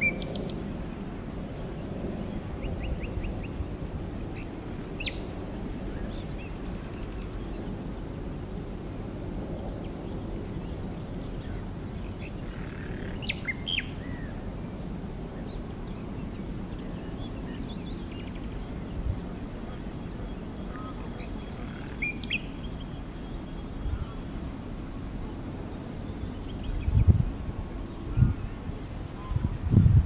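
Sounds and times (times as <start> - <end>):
nightingale whistling and chirping: 0.0 - 0.6, 4.4 - 5.3, 13.2 - 14.4, 22.0 - 23.7.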